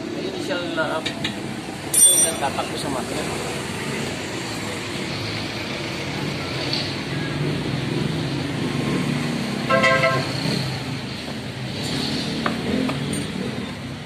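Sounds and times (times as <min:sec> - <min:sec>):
road traffic: 0:00.0 - 0:14.0
vehicle horn toot: 0:09.7 - 0:10.3.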